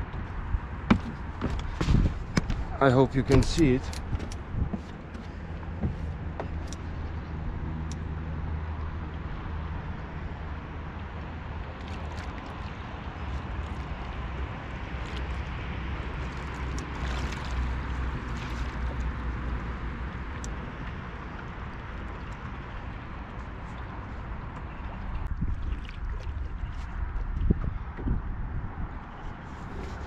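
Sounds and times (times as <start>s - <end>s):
water noise: 0.0s - 30.0s
light splashes: 11.6s - 19.6s, 24.9s - 27.0s.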